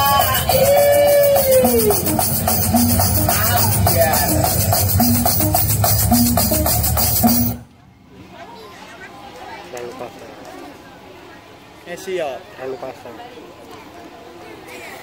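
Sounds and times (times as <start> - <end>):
backing music with fast percussion: 0.0 - 7.7.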